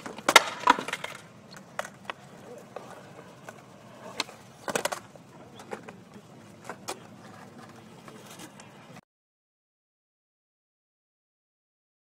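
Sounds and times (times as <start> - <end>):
skateboard clattering on concrete: 0.0 - 8.8.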